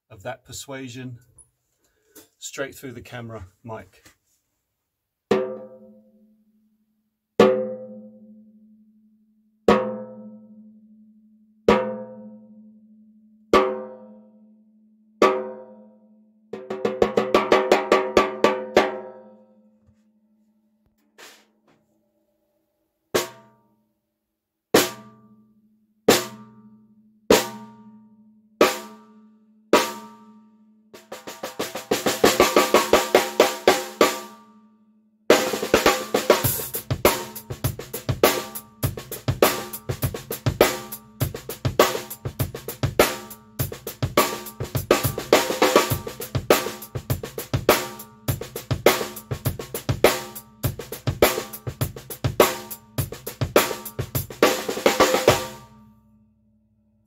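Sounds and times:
drum kit playing: 0:21.2 - 0:21.4, 0:31.0 - 0:34.3, 0:35.3 - 0:55.8
snare drum roll: 0:21.2 - 0:21.4, 0:31.0 - 0:34.3, 0:35.3 - 0:55.7
snare drum strokes: 0:21.2 - 0:21.5, 0:35.3 - 0:55.6
bass drum: 0:35.3 - 0:55.8.

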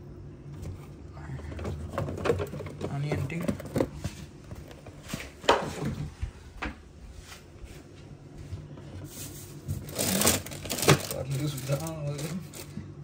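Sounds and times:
refrigerator drawer moving: 0:00.5 - 0:06.2, 0:09.6 - 0:12.7
containers clattering in refrigerator: 0:00.6 - 0:06.2, 0:09.6 - 0:12.8.

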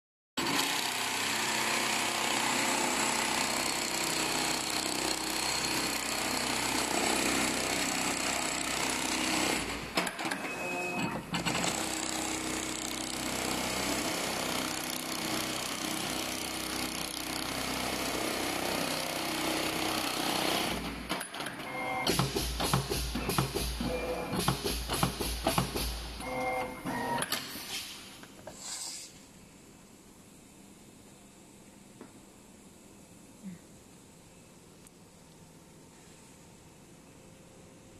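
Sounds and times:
sewing machine stitching: 0:00.4 - 0:27.2.

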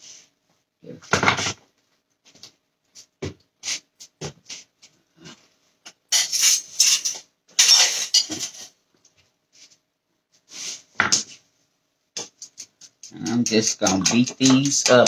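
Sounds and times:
utensils and dishes clattering: 0:06.1 - 0:08.8, 0:12.2 - 0:15.0.

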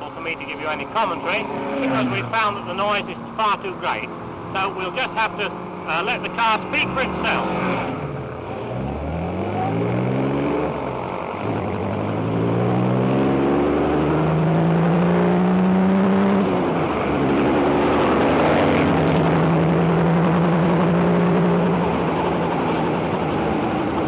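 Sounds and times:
racing car engine accelerating: 0:00.0 - 0:24.0.

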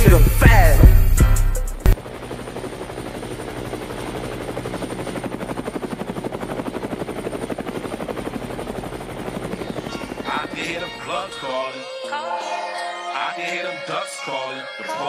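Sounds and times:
helicopter rotor chopping: 0:00.0 - 0:12.0.

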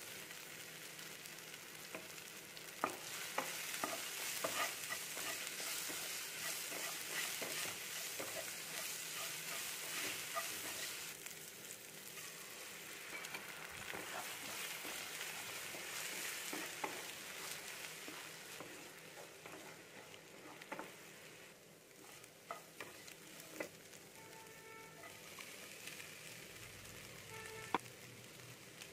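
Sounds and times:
food sizzling in oil: 0:00.0 - 0:28.9
wooden spatula scraping pan: 0:02.8 - 0:11.1, 0:13.1 - 0:21.1, 0:22.0 - 0:23.8.

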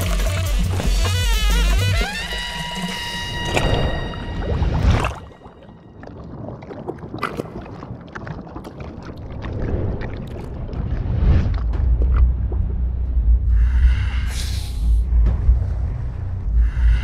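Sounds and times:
low rumble: 0:09.2 - 0:17.0.

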